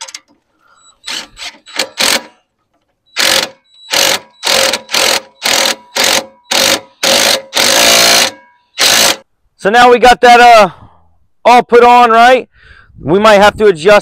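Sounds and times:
cordless driver whirring: 0:03.2 - 0:09.2.

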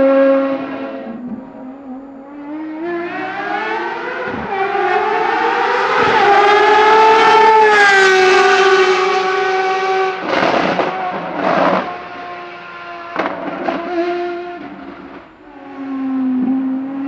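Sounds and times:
race car engine at full throttle: 0:00.0 - 0:17.0.

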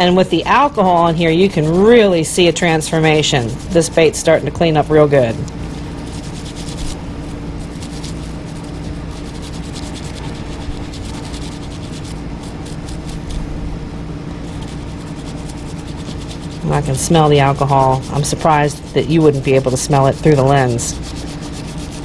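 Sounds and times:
low hum: 0:00.0 - 0:22.0
toothbrush scrubbing plastic: 0:00.1 - 0:13.5, 0:14.4 - 0:22.0.

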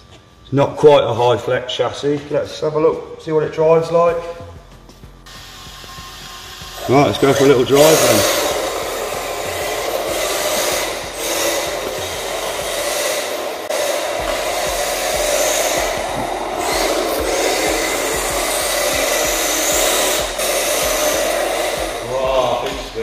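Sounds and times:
electric motor whining: 0:05.2 - 0:23.0
tyres sliding on concrete: 0:07.3 - 0:22.8.

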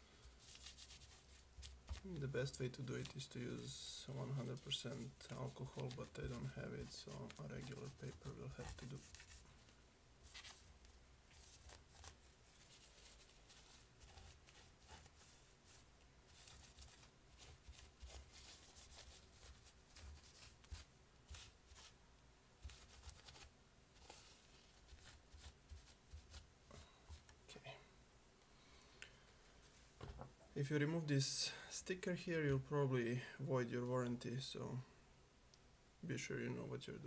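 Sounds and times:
tissue rubbing on circuit board: 0:00.4 - 0:22.0, 0:22.6 - 0:27.3.

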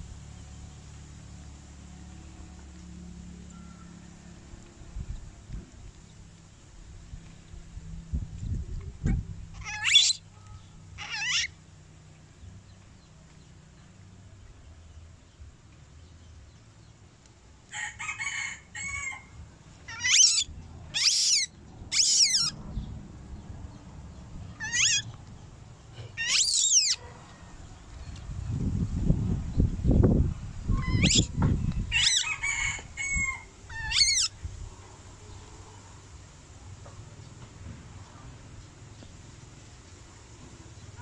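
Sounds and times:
baby monkey squealing: 0:09.6 - 0:10.2, 0:11.0 - 0:11.5, 0:19.9 - 0:22.6, 0:24.6 - 0:25.1, 0:26.2 - 0:27.0, 0:30.7 - 0:31.3, 0:31.9 - 0:32.4, 0:33.7 - 0:34.4.

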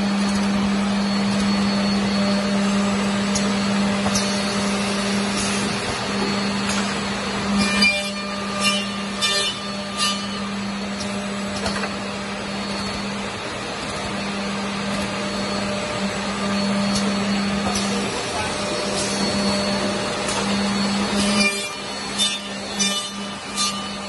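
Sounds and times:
woodworking machine humming: 0:00.0 - 0:24.0.

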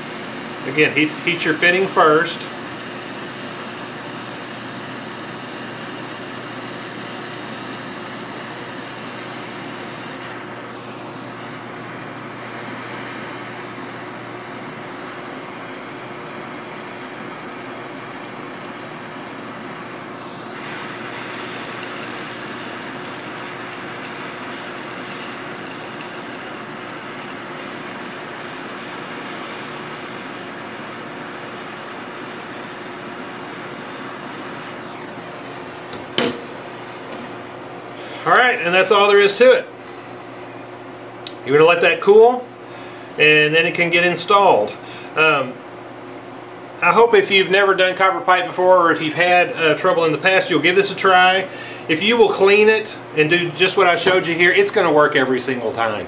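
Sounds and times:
torch flame hissing: 0:00.0 - 0:38.8.

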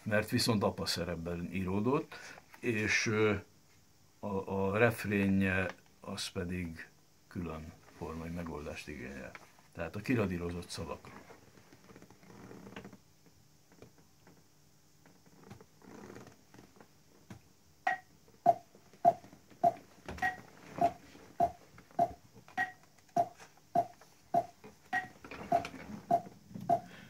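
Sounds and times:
faint paper rustling: 0:07.8 - 0:12.0.

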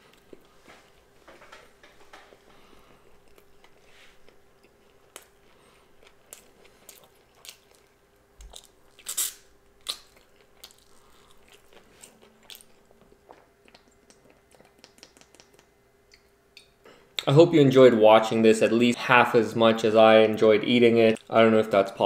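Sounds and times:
person chewing and biting food: 0:03.0 - 0:16.7
wet mouth clicks: 0:13.7 - 0:17.3.

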